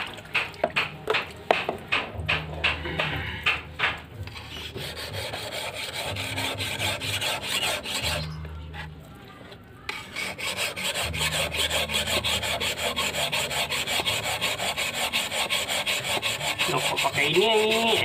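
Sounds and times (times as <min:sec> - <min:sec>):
blade scraping on whetstone: 0:03.4 - 0:09.0, 0:09.9 - 0:18.0.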